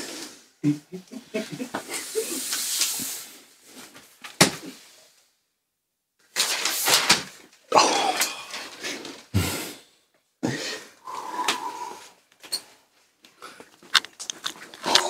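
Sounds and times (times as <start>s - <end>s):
stifled laughter: 0.6s - 2.5s
sharp breaths: 8.2s - 12.2s.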